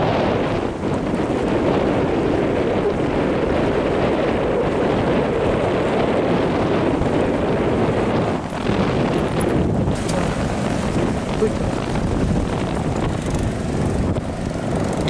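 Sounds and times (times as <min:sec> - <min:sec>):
wind buffeting microphone: 0:00.0 - 0:15.0
sea waves washing on breakwater: 0:06.8 - 0:15.0.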